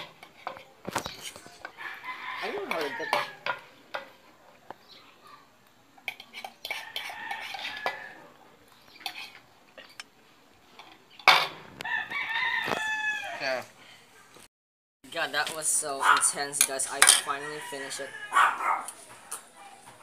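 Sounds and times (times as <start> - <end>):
cutlery scraping against plate: 0.0 - 1.8, 2.6 - 4.2, 6.0 - 8.2, 8.8 - 10.1, 16.2 - 17.5.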